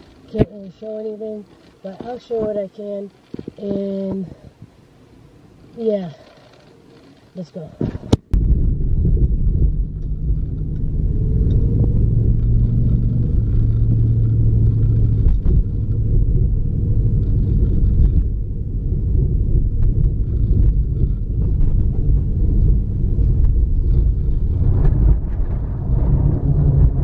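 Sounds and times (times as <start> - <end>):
car road rumble from cabin: 0.0 - 6.1, 7.4 - 27.0
low engine drone: 0.0 - 27.0.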